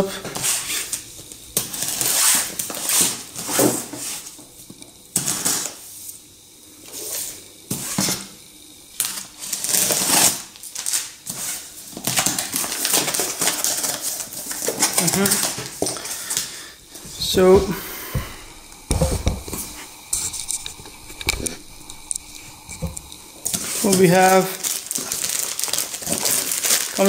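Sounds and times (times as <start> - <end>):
packing tape ripping: 1.6 - 3.7, 9.0 - 16.5, 18.9 - 27.0.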